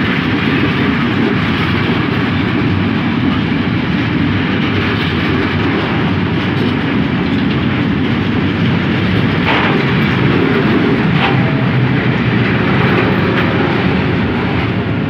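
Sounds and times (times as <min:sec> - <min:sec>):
freight train wheels rumbling: 0:00.0 - 0:15.0
sharp train clacks: 0:00.0 - 0:15.0.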